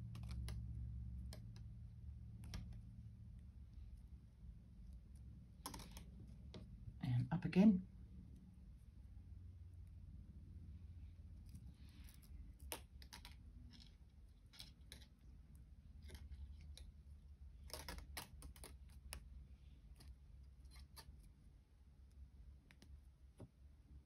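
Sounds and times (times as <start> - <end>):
thin wire clicking and scraping: 0.0 - 1.7, 2.3 - 3.0, 4.8 - 6.7, 11.3 - 17.0, 17.6 - 21.4.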